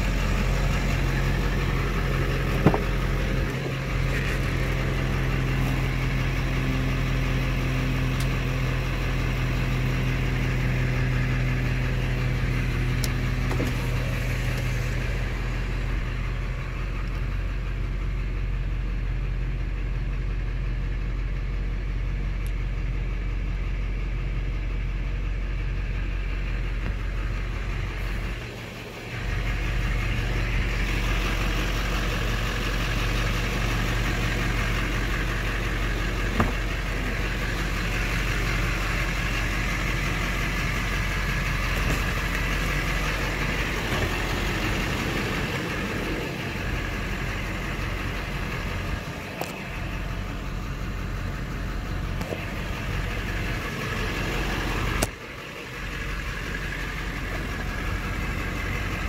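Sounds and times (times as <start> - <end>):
diesel engine idling: 0.0 - 59.0.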